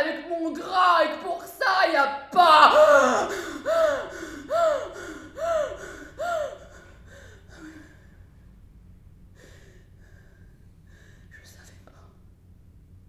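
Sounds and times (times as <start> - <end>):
woman sobbing: 2.4 - 8.2.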